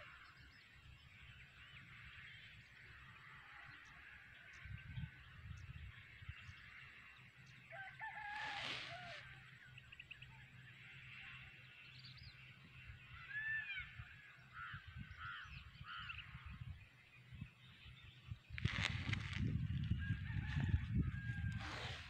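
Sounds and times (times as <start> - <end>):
wind rumble on microphone: 4.0 - 6.8, 12.1 - 22.0.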